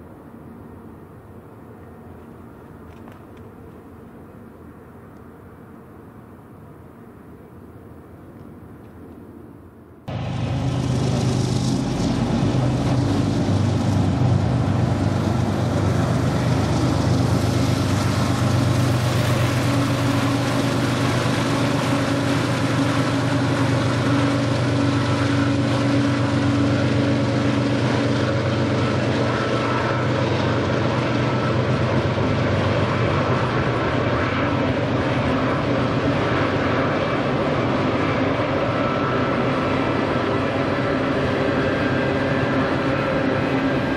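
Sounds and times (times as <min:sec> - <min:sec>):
diesel locomotive engines: 0:00.0 - 0:43.9
train cars rolling: 0:10.1 - 0:33.2.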